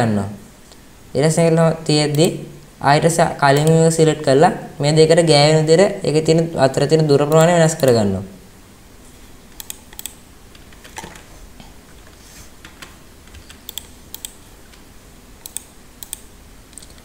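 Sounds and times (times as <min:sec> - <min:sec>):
faint steady hiss: 0:00.0 - 0:17.0
keyboard and mouse clicks: 0:03.5 - 0:03.8, 0:09.5 - 0:11.3, 0:12.0 - 0:17.0.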